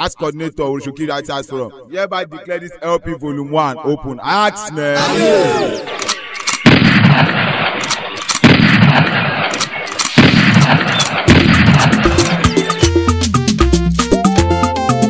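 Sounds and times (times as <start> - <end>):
lighter gunshot cracks: 6.6 - 12.4
heavy gunshots rumbling: 6.6 - 12.5
music: 11.3 - 15.0.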